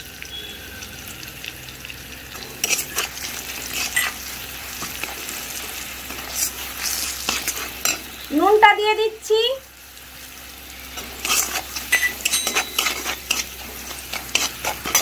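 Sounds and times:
spices sizzling in hot oil: 0.0 - 15.0
metal spatula scraping pan: 2.3 - 8.0, 10.9 - 15.0.

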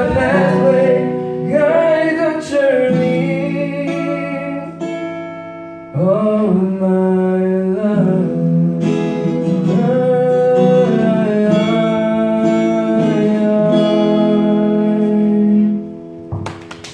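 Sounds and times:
men singing: 0.0 - 4.5
strummed acoustic guitar: 0.0 - 16.8.

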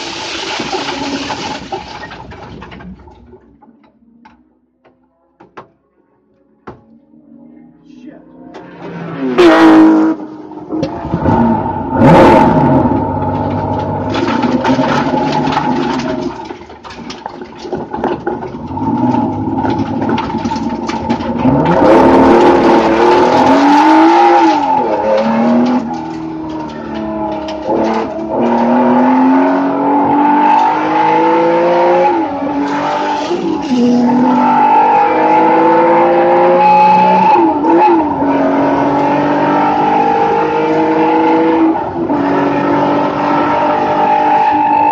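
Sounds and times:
race car engine accelerating: 21.3 - 44.9.

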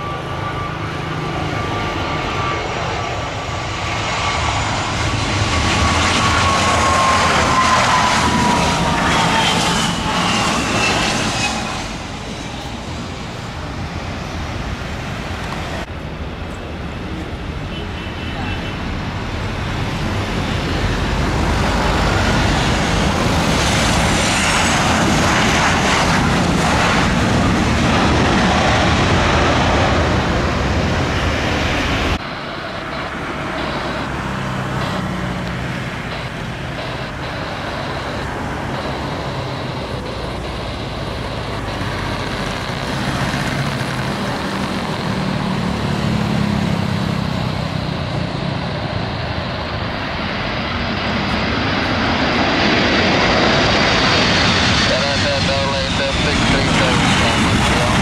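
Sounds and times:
jumbo jet low drone: 0.0 - 17.6, 19.0 - 58.0
jet airliner engine roar: 0.0 - 58.0
road traffic: 0.0 - 58.0
steady jet rumble: 21.4 - 45.6.

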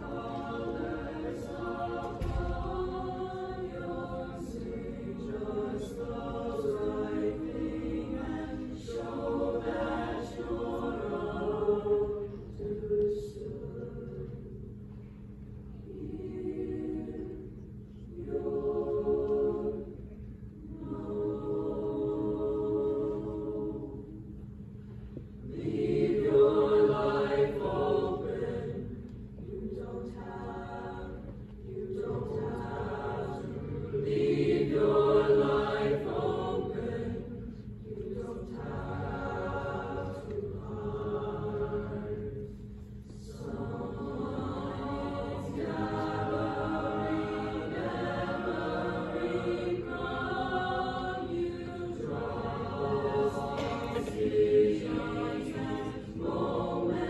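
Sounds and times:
mixed choir singing in harmony: 0.0 - 57.0.

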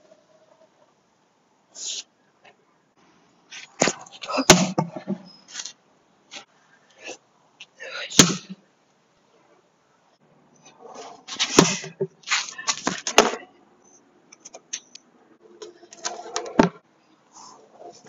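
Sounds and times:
scuffing and scraping: 5.5 - 6.5, 11.0 - 13.3.

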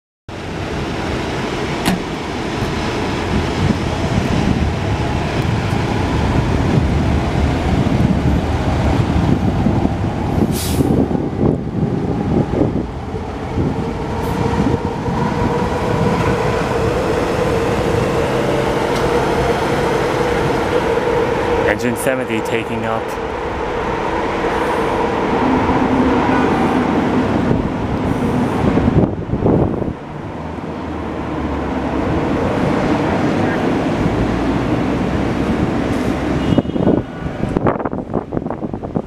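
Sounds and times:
diesel truck engine rolling by: 0.3 - 36.5
air brake hiss: 10.4 - 10.9.

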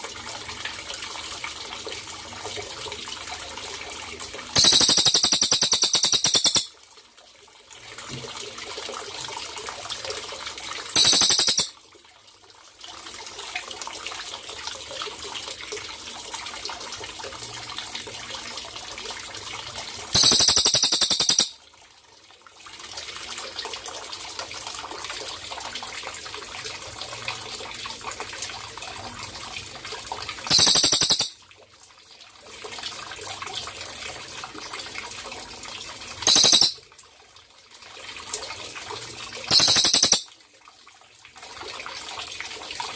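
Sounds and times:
running water trickling: 0.0 - 42.9
jay rattling call: 4.6 - 6.7, 11.0 - 11.7, 20.2 - 21.6, 30.5 - 31.4, 36.3 - 36.8, 39.5 - 40.3.

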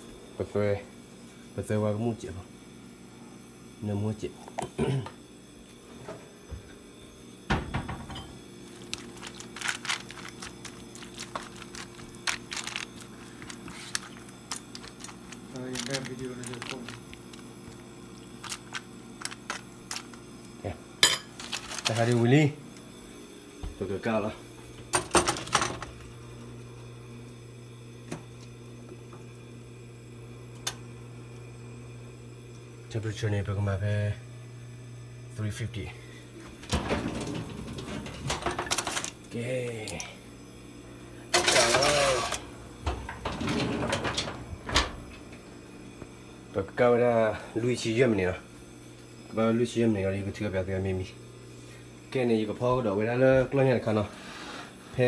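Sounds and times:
steady low hum: 0.0 - 55.0
aluminium foil crinkling: 8.6 - 20.2, 21.3 - 22.4, 37.2 - 39.2.

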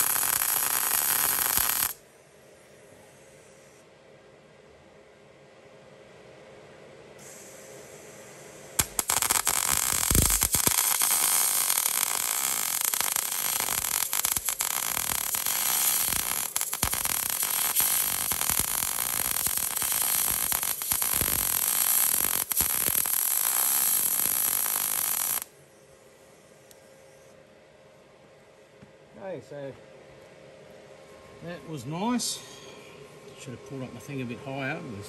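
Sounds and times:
welder arc crackling: 0.0 - 2.0, 7.2 - 25.5.

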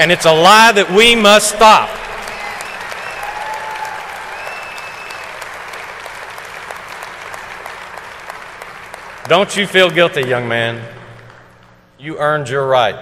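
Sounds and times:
large audience applauding: 0.0 - 11.9.

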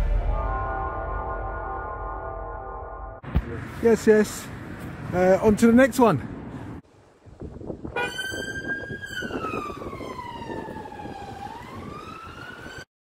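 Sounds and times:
police siren wailing: 8.0 - 12.9.

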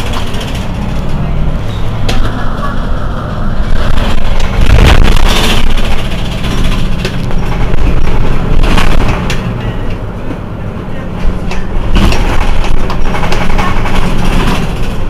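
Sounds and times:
bus engine idling: 0.0 - 15.0
burst of noise: 3.6 - 6.0.

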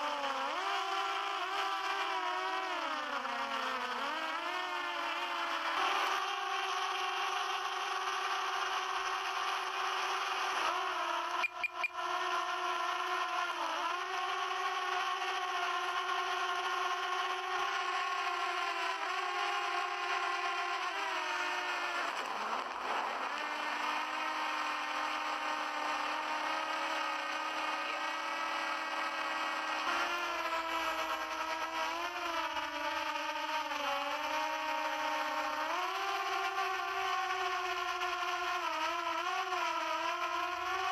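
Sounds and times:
drone propellers humming: 6.2 - 17.3, 28.0 - 40.9.

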